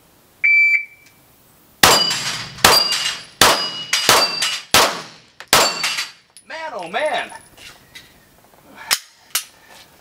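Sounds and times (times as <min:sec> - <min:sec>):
steel plate ringing: 0:01.8 - 0:04.7, 0:05.6 - 0:06.2
pistol shots: 0:01.8 - 0:06.2.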